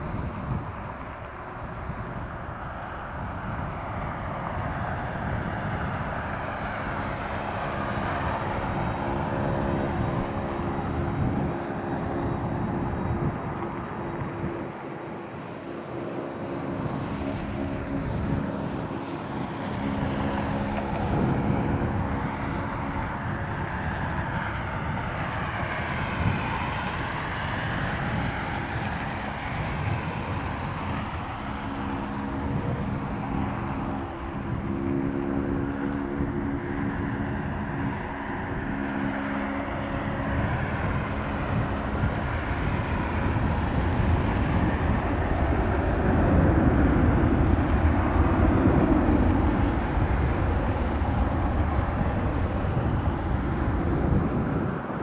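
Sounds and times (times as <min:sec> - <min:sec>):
jet engines roaring: 0:00.0 - 0:55.0
wind buffeting microphone: 0:00.0 - 0:55.0.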